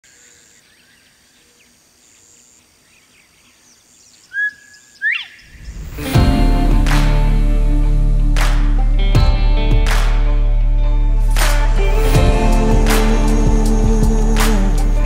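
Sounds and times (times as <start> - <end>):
faint bird chirps: 0.0 - 5.9
bird whistling call: 4.3 - 5.8
music: 5.6 - 15.0.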